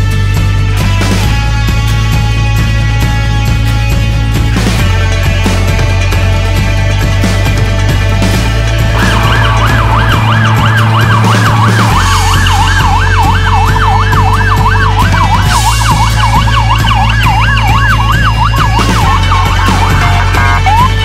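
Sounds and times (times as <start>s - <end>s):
background music with deep bass: 0.0s - 21.0s
emergency vehicle siren yelping: 8.9s - 21.0s.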